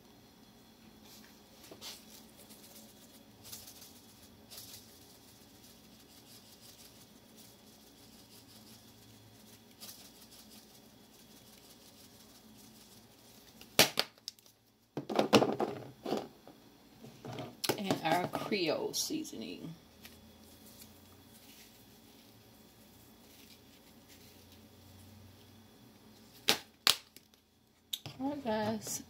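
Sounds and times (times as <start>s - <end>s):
spice container shaking rattle: 1.6s - 14.8s, 19.4s - 25.0s.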